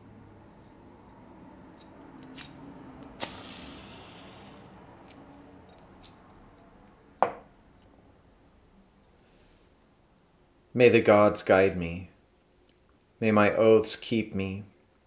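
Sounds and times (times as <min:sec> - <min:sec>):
match striking and flaring: 0:03.2 - 0:04.7.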